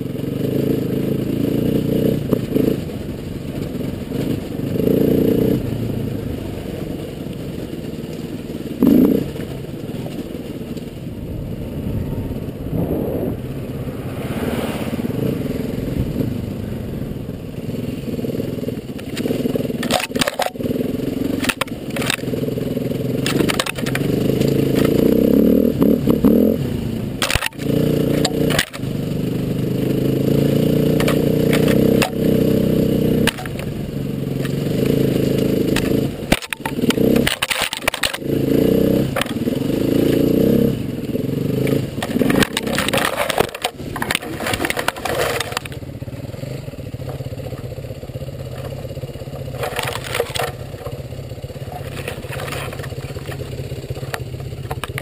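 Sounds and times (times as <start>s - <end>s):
branches scraping against motorcycle: 0.0s - 55.0s
motorcycle engine at low revs: 0.0s - 55.0s.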